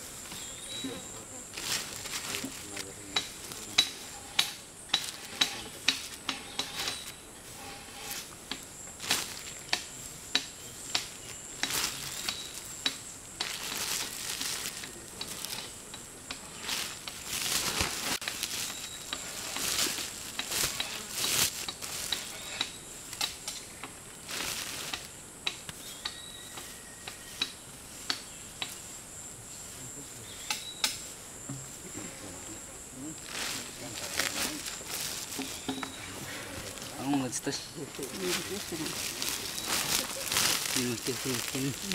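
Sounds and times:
sawdust rustling in plastic sack: 0.0 - 3.8, 5.0 - 10.2, 10.8 - 15.8, 16.4 - 22.6, 24.1 - 25.2, 33.2 - 35.7, 36.5 - 41.9
insects droning: 0.0 - 41.9.

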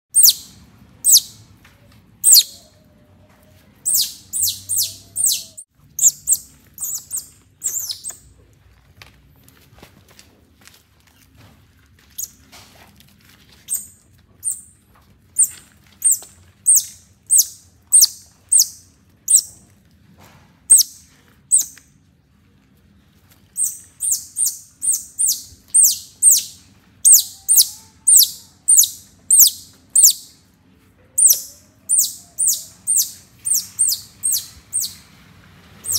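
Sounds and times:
baby otter chirping: 0.1 - 1.4, 2.2 - 2.7, 3.8 - 8.2, 13.7 - 14.7, 15.4 - 19.6, 20.7 - 21.8, 23.6 - 30.3, 31.2 - 35.0.

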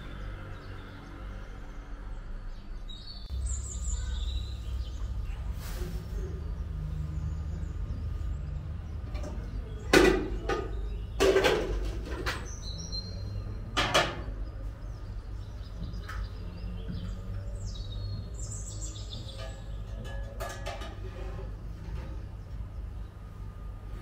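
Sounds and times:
metal pans clanking: 9.1 - 12.5, 19.2 - 22.2.

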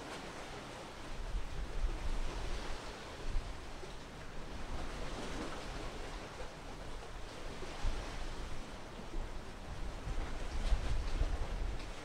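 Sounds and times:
wind and sea rushing: 0.0 - 12.0
wind buffeting microphone: 7.6 - 12.0.

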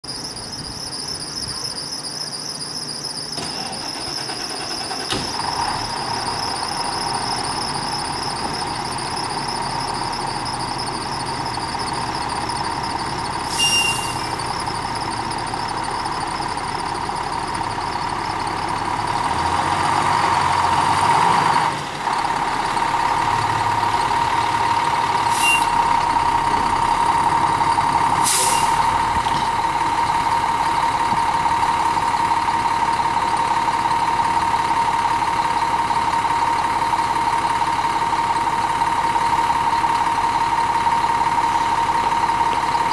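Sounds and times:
diesel engine running: 0.0 - 42.9
air brakes hissing: 10.3 - 15.9, 24.4 - 29.6.

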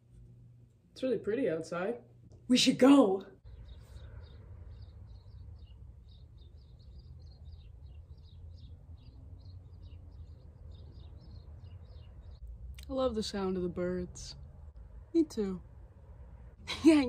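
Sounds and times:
small birds chirping: 3.2 - 17.0
low background rumble: 3.4 - 17.0.

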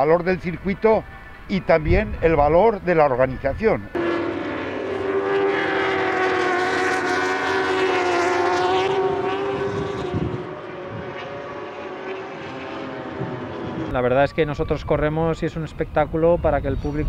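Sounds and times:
racing motorcycles at high revs: 3.9 - 13.9.

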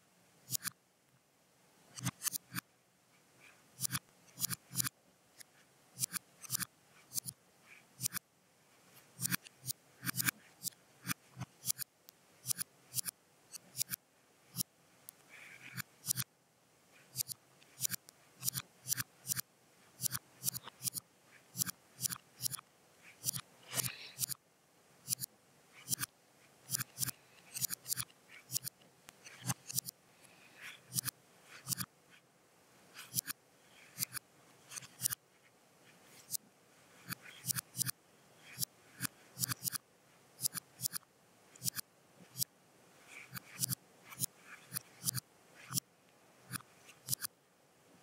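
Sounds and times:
sharp short clicks: 21.6 - 22.6, 23.2 - 24.4, 26.7 - 29.9, 46.5 - 47.3.

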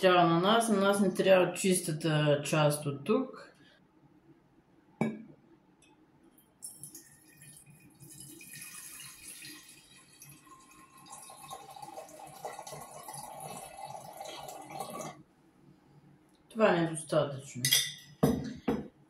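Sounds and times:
liquid trickling into glass jar: 6.6 - 15.2.

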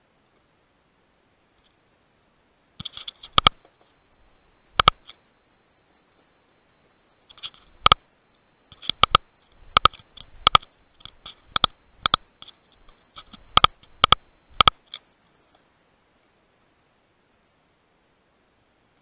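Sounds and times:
faint high electronic whine: 0.0 - 19.0
sharp button clicks: 3.3 - 3.6, 4.8 - 5.1, 8.7 - 12.3.

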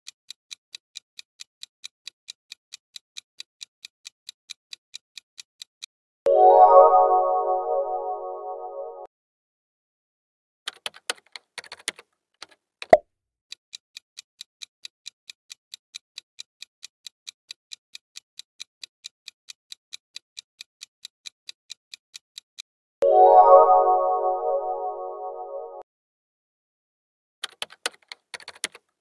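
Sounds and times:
typewriter-style clicks: 10.7 - 13.0, 27.4 - 28.9
bright pitched chime: 23.0 - 25.8.

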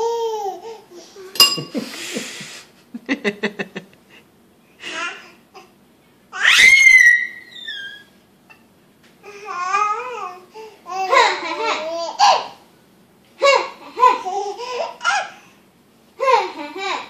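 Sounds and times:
high squeal: 6.5 - 8.1.

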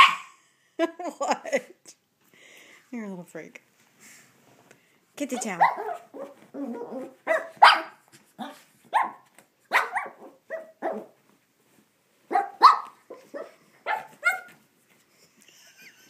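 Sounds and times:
small dog barking: 0.0 - 0.3, 5.4 - 11.2, 12.3 - 14.6.

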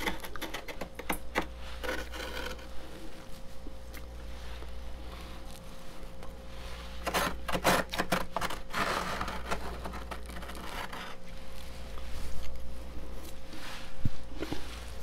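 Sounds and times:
metal spoon scraping frost: 6.8 - 11.2.

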